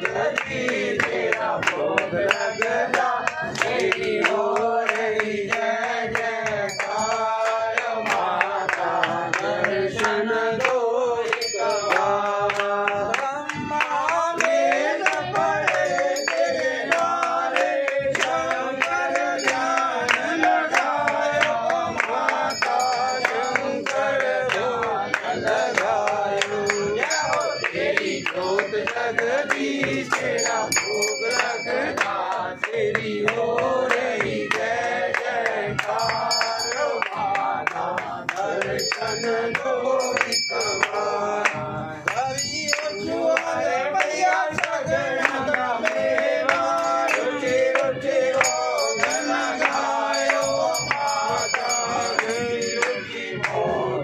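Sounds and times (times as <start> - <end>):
sharp hand claps: 0.0 - 53.9
group singing a hymn: 0.0 - 54.0.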